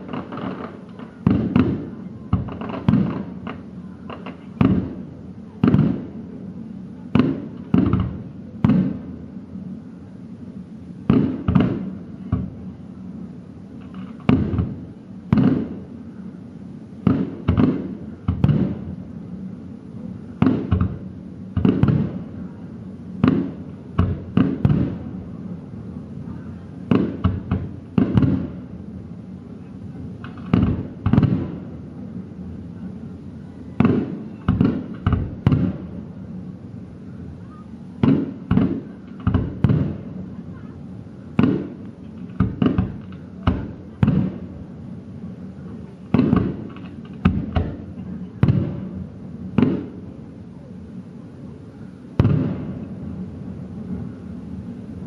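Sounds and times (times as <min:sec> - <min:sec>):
fireworks bursting: 0:00.0 - 0:55.0.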